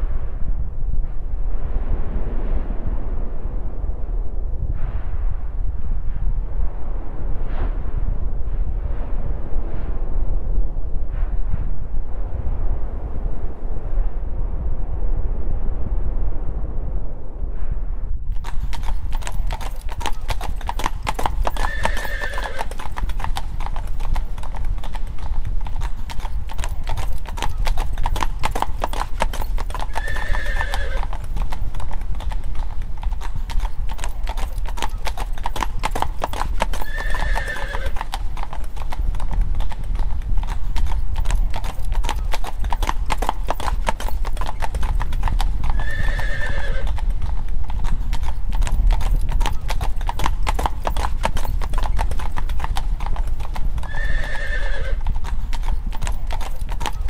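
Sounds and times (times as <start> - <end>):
low rumble: 0.0 - 37.0
horse hooves clip-clopping on road: 18.3 - 57.0
horse whinny: 21.2 - 22.9, 29.8 - 31.2, 36.7 - 38.0, 45.7 - 47.0, 53.8 - 55.1.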